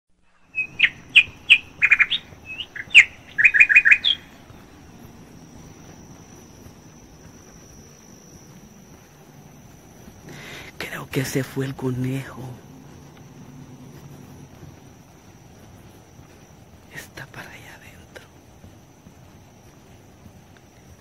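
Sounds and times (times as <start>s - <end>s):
faint high-pitched whine: 0.2s - 21.0s
small bird chirping and trilling: 0.4s - 4.6s.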